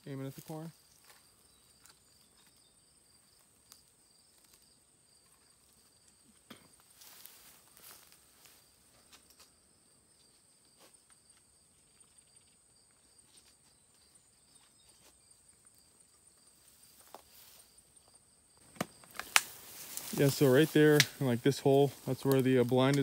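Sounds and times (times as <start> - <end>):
faint high-pitched insect trill: 0.1 - 22.9
faint clicks and rustles: 10.2 - 23.0.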